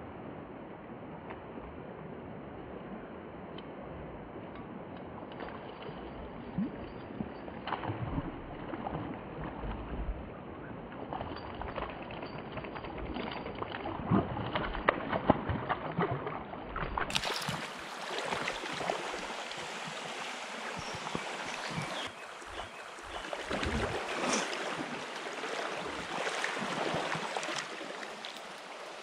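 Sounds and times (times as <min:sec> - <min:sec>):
flowing stream water: 0:04.6 - 0:29.0
fish splashing at the surface: 0:17.1 - 0:29.0
hissing rush of water: 0:17.1 - 0:29.0.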